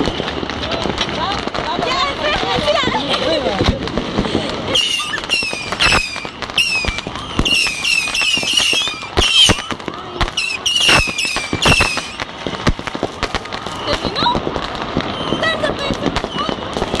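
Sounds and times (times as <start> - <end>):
firecrackers banging: 0.0 - 17.0
high falling whistles: 4.7 - 9.7.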